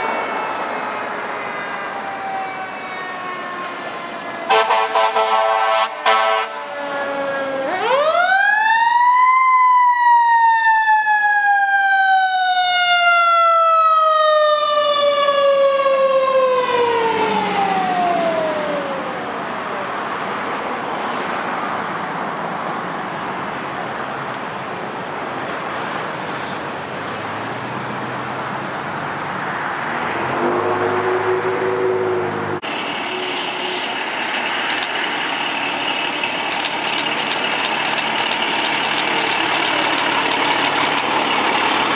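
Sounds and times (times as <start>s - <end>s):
fire engine siren: 0.0s - 21.0s
fire engine driving in traffic: 0.0s - 41.9s
low horn: 4.5s - 6.7s.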